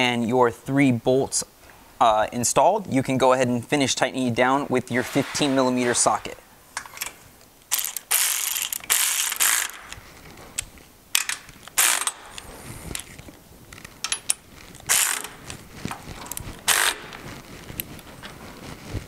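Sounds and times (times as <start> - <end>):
cordless ratchet running: 7.7 - 9.8, 14.9 - 15.4, 16.7 - 17.2.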